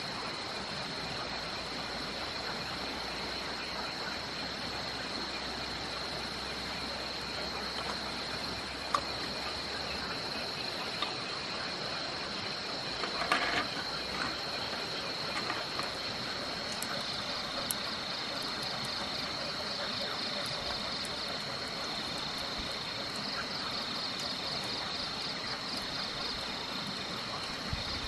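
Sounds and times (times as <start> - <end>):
crickets chirring: 0.0 - 28.0
cooking items clattering: 13.0 - 16.8.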